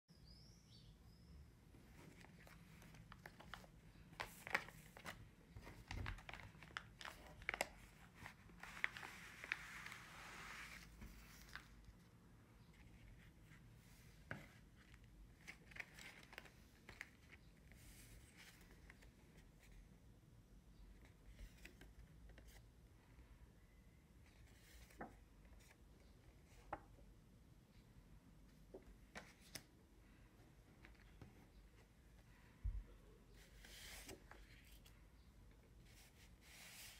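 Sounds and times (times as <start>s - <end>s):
paper rustling: 1.9s - 12.1s, 14.2s - 19.2s.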